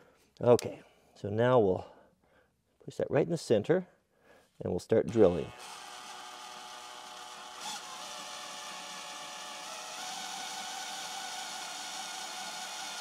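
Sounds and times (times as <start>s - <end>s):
cordless drill boring into steel: 5.1s - 13.0s.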